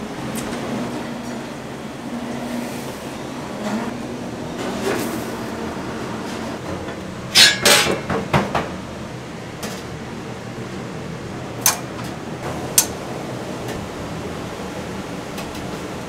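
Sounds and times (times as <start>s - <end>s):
steady background hum: 0.0s - 16.0s
metal pan lid clanking: 7.3s - 8.2s.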